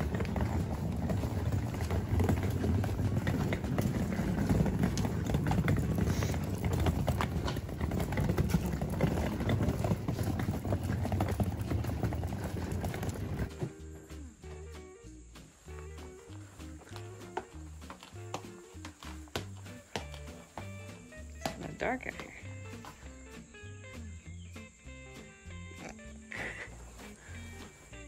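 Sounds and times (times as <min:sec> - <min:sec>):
rolling suitcase wheels rattling: 0:00.0 - 0:14.6, 0:15.5 - 0:23.1
footsteps on paved path: 0:00.0 - 0:28.0.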